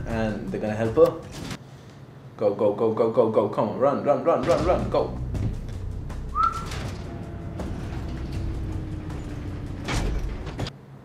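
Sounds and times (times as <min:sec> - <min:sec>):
low rumble: 0:04.6 - 0:10.7
whistle-like tone: 0:06.3 - 0:06.8.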